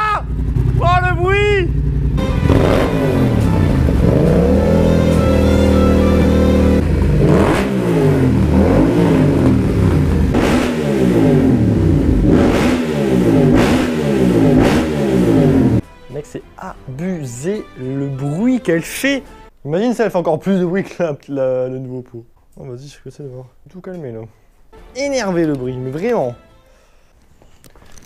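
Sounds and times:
exhaust cracks: 0.0 - 15.8
motorcycle engine revving: 0.2 - 15.8.

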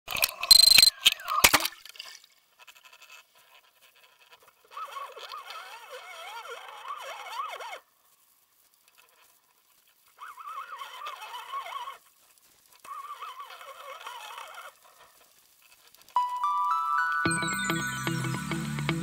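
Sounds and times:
water splashing: 1.1 - 2.9.

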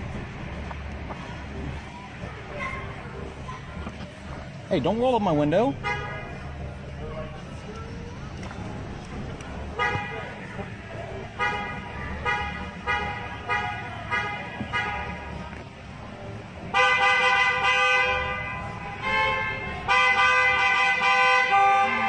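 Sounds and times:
car horn honking: 5.7 - 6.6, 9.6 - 15.4, 16.6 - 22.0.

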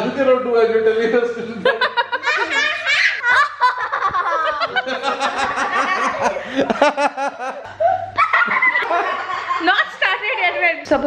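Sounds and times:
man laughing: 1.6 - 9.3
children giggling: 1.6 - 9.9.

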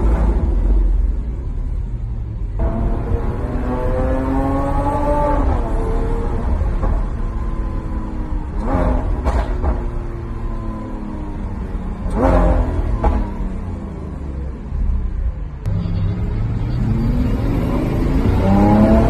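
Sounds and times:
sports car engine revving: 2.5 - 14.5, 16.5 - 19.0.

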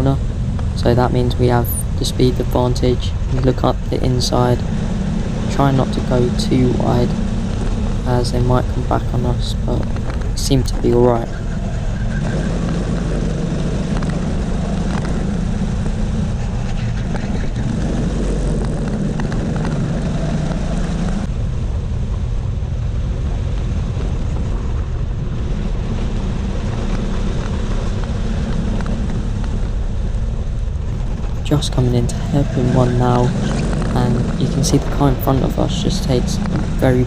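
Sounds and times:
kart engine running hard: 0.0 - 21.3, 30.8 - 37.0
track noise: 0.0 - 37.0
wind: 0.0 - 37.0.

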